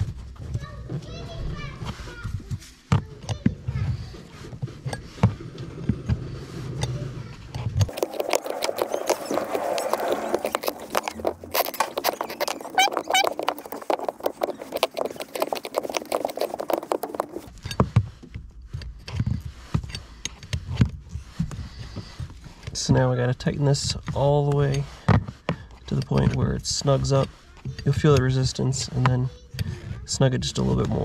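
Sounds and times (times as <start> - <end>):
short squeaks: 7.8 - 17.5.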